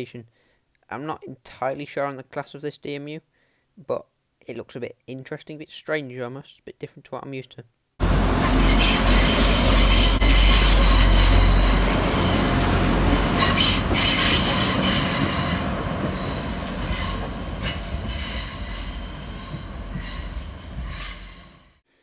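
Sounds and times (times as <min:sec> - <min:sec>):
diesel train rumbling: 0:08.0 - 0:21.8
high wheel squeal: 0:08.3 - 0:21.8.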